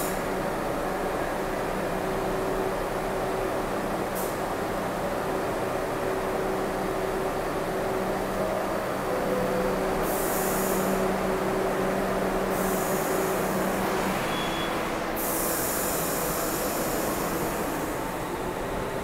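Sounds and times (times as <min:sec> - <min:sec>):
subway train humming: 0:00.0 - 0:19.0
train pulling out: 0:00.0 - 0:19.0
air brakes hissing: 0:04.2 - 0:04.5, 0:10.0 - 0:11.3, 0:12.4 - 0:18.0
short high beep: 0:14.2 - 0:14.9.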